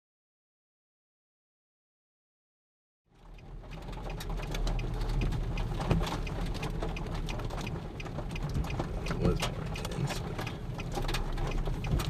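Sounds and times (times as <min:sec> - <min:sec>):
light ticks and taps: 0:03.2 - 0:12.0
vehicle engine idling: 0:03.2 - 0:12.0.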